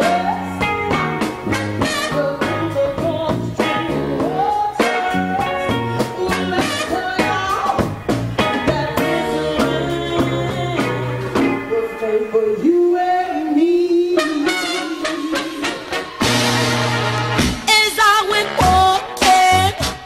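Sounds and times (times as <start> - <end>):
woman singing: 0.0 - 1.0, 1.8 - 16.1, 17.7 - 20.0
funk band playing: 0.0 - 12.8, 14.0 - 20.0
drum hits: 16.2 - 17.7.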